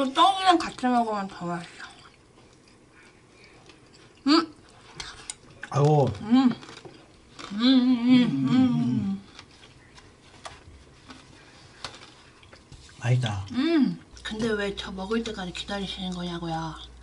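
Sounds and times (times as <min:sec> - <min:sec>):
woman humming while chewing: 0:07.4 - 0:09.3.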